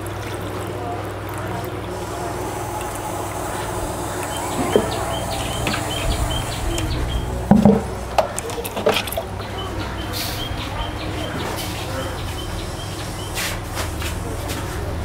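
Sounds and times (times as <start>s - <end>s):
steady low hum: 1.6s - 8.5s
bird chirping: 2.0s - 7.5s.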